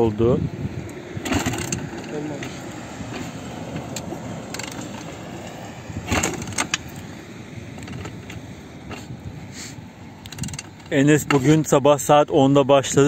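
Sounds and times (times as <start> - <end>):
motorcycle kick-start clank: 1.2 - 5.2, 6.0 - 7.0, 10.3 - 11.6.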